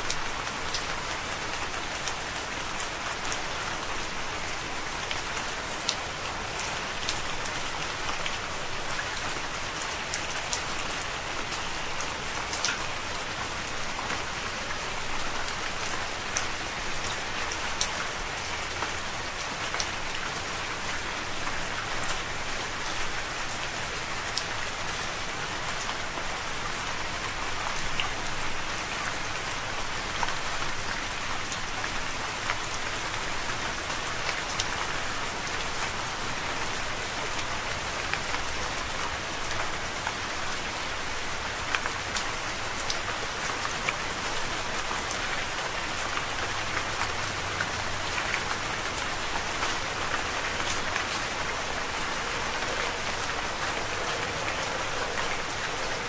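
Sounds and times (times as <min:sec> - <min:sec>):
steady rain hiss: 0:00.0 - 0:56.0.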